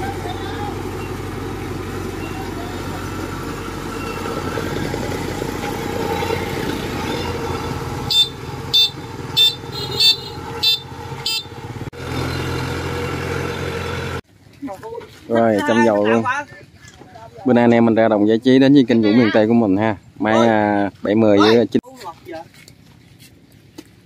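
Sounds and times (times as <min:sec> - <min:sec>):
diesel engine running: 0:00.0 - 0:14.3.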